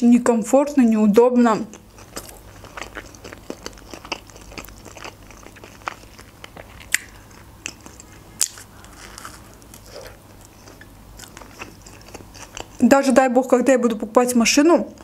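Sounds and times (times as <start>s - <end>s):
person chewing food: 1.7s - 12.8s.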